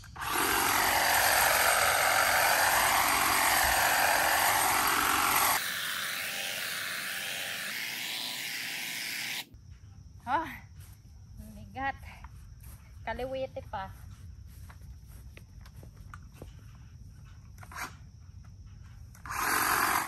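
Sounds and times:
hedge trimmer cutting foliage: 0.0 - 9.5, 19.2 - 20.0.

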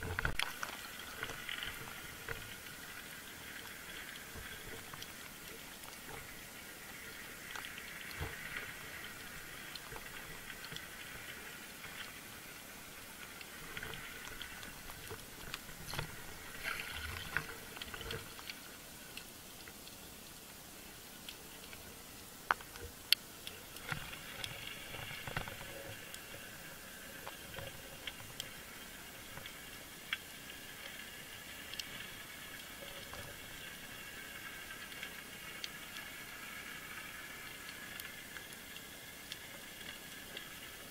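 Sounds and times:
small underwater crackles and clicks: 0.0 - 40.9
underwater hiss: 0.7 - 22.4.

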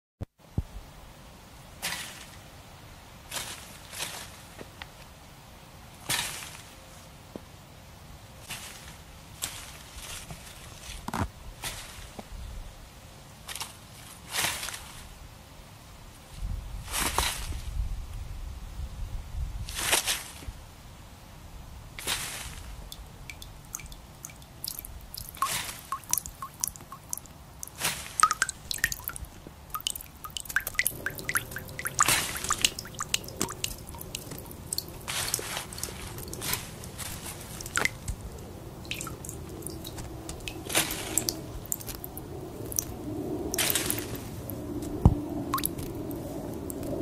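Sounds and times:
drip-like plops and clicks: 22.9 - 42.9, 43.5 - 47.0.

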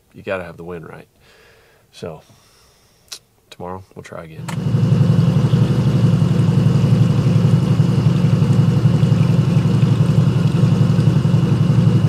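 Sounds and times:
vehicle engine idling: 4.4 - 12.0.

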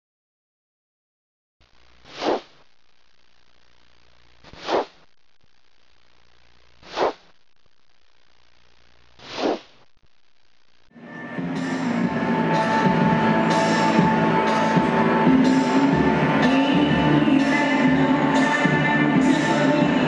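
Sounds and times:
faint steady hum: 1.6 - 11.0
whoosh sound effects: 2.1 - 2.6, 4.5 - 5.0, 6.9 - 7.3.

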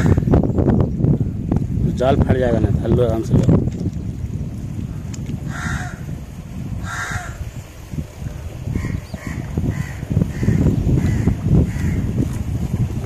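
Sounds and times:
steady low rumble: 0.0 - 13.0
crow cawing: 5.5 - 6.1, 6.8 - 7.4, 8.7 - 12.1.

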